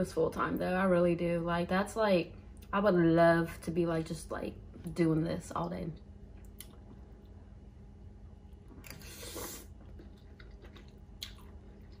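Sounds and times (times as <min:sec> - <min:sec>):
person chewing: 0:08.5 - 0:12.0
noodle slurp: 0:08.8 - 0:10.2.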